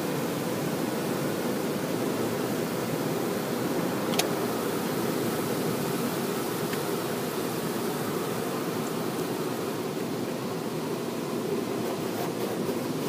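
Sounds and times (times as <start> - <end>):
car wash water spray on car: 0.0 - 13.0.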